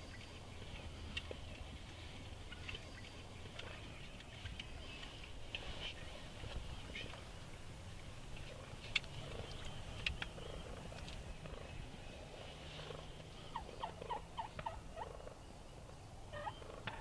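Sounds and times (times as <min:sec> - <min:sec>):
turkeys purring and clucking: 0:00.0 - 0:17.0
turkey yelps: 0:13.5 - 0:15.4, 0:16.3 - 0:17.0.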